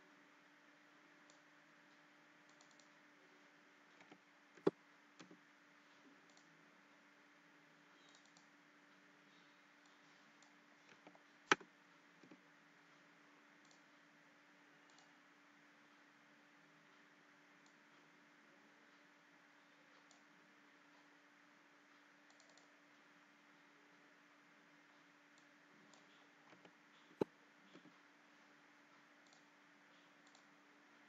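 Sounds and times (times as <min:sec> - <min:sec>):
faint steady hum: 0:00.0 - 0:31.0
mouse clicks: 0:02.5 - 0:03.0, 0:06.3 - 0:06.5, 0:08.0 - 0:08.5, 0:14.8 - 0:15.1, 0:22.2 - 0:22.8, 0:29.2 - 0:29.5, 0:30.2 - 0:30.5.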